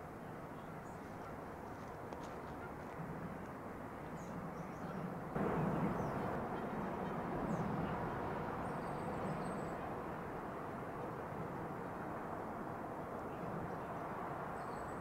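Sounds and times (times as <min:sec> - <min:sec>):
steady low rumble: 0:04.2 - 0:15.0.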